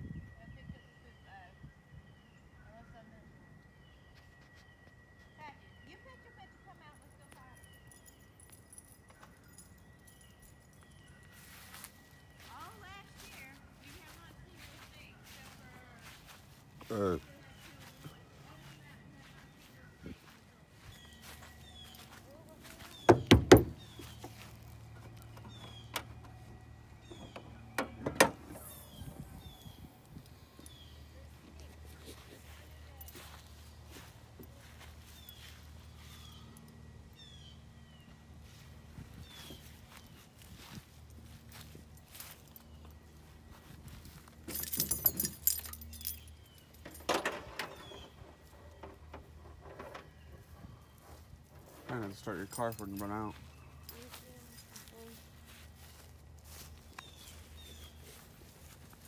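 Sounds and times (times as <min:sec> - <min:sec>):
dull handling noise: 0:23.0 - 0:29.2
loud knocks: 0:23.1 - 0:23.8
keys jangling: 0:44.1 - 0:48.1, 0:52.1 - 0:54.1.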